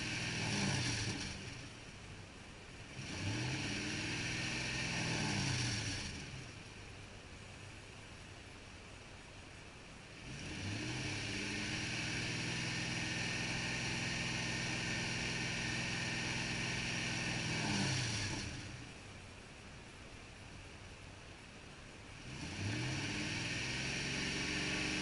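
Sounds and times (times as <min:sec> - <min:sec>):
truck engine idling and revving: 0:00.0 - 0:25.0.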